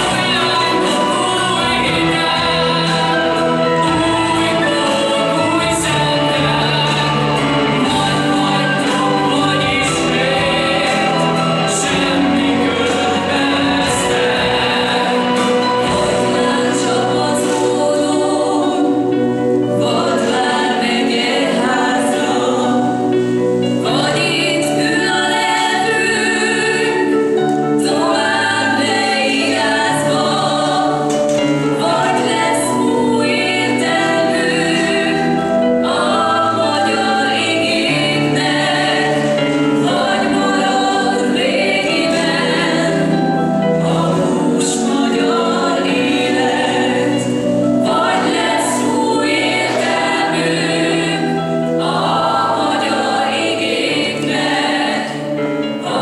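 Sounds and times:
choir singing held chords: 0:00.0 - 0:56.0.

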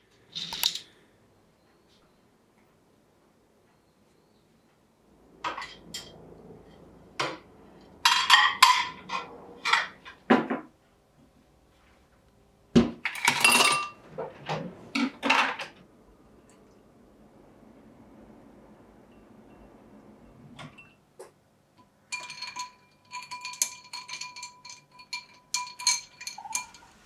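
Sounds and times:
plates and bowls clattering: 0:08.0 - 0:10.7, 0:12.8 - 0:15.8, 0:22.1 - 0:27.0.

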